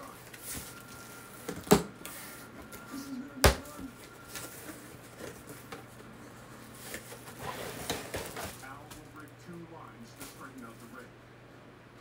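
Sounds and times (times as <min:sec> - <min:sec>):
cardboard rustling: 0:06.7 - 0:09.0.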